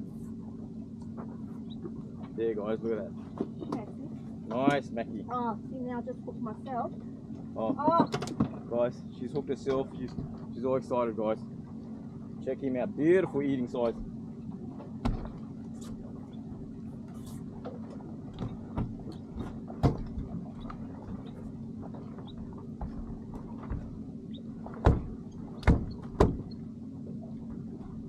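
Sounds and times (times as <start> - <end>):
boat motor running: 0.0 - 28.0
knocks on boat deck: 15.0 - 15.5, 17.6 - 20.8, 22.3 - 24.0, 24.6 - 26.6.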